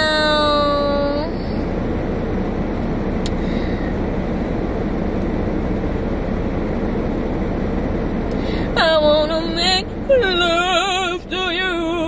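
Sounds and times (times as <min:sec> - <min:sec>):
car cabin rumble and hiss: 0:00.0 - 0:12.0.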